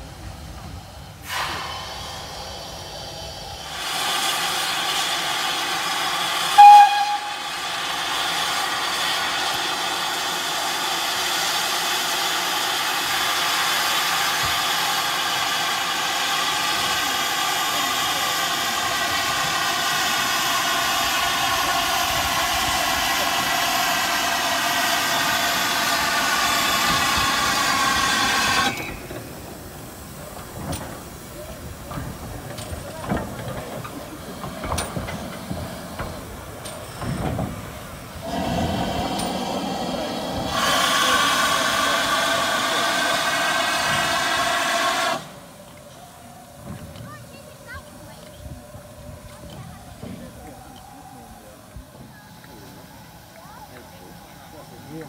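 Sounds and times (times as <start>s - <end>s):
steam locomotive hissing steam: 0.0s - 55.0s
steam whistle toot: 6.4s - 7.7s.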